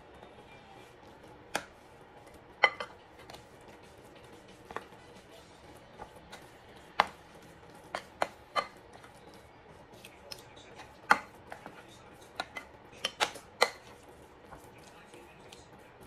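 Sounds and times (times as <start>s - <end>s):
metal spoon clinking on ceramic bowl: 2.6s - 3.0s.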